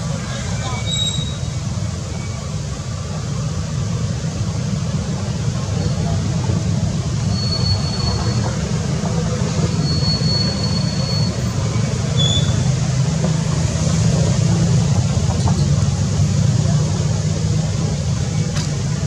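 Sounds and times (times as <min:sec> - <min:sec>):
thin high whistle: 0:07.3 - 0:08.4, 0:09.8 - 0:11.5.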